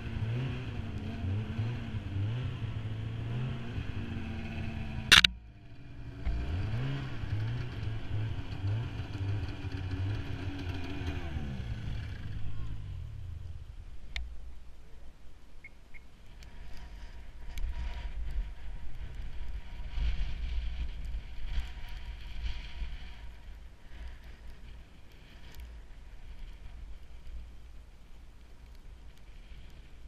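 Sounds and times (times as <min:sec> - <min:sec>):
snowmobiles idling: 0:00.0 - 0:14.1.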